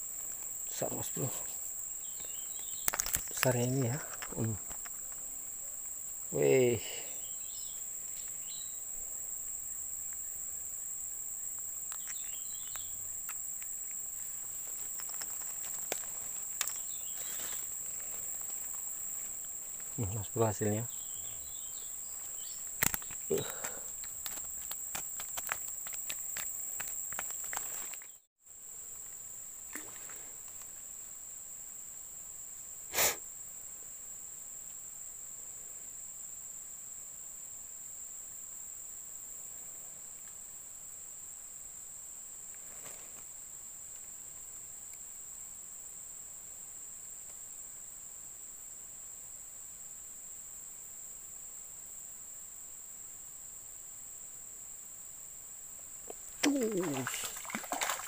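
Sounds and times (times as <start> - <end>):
high-pitched insect drone: 0.0 - 28.2, 56.2 - 58.0.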